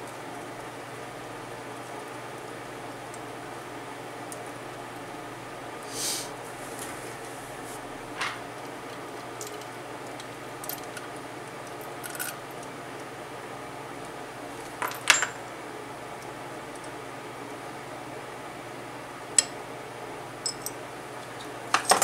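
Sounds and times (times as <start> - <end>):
small metal parts clinking: 9.4 - 9.7, 11.9 - 12.4, 14.7 - 15.4, 20.4 - 20.8.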